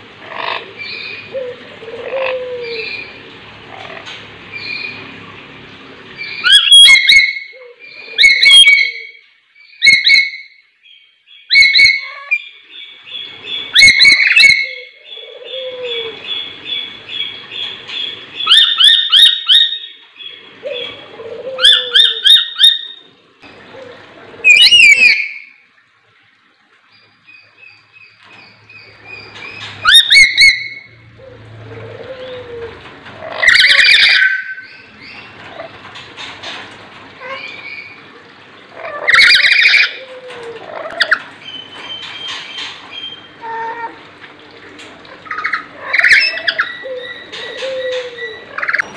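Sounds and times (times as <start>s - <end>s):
parrots squawking shrilly: 33.2s - 34.6s, 38.8s - 40.0s, 45.2s - 48.9s.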